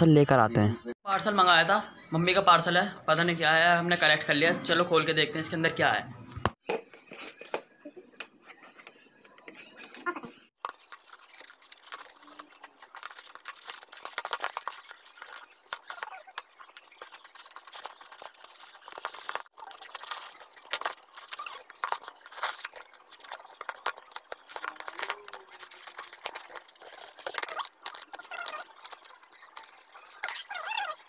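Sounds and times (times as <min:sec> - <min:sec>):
scissors cutting tape and cardboard: 0:06.8 - 0:31.0.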